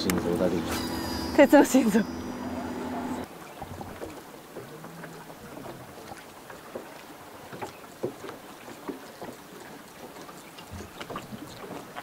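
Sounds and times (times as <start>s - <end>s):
faint boat engine hum: 0.0s - 12.0s
water lapping against boat hull: 3.2s - 12.0s.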